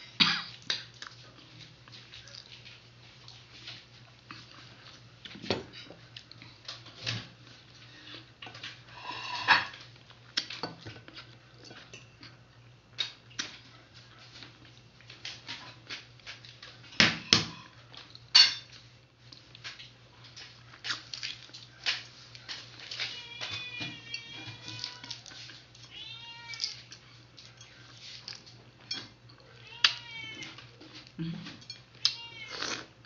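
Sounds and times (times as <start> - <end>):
person sipping: 32.5 - 32.9.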